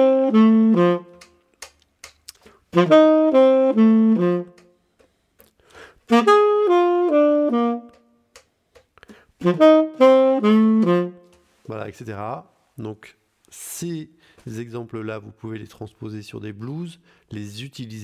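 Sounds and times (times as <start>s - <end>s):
tenor saxophone arpeggios: 0.0s - 1.3s, 2.7s - 4.8s, 6.1s - 8.2s, 9.4s - 11.4s.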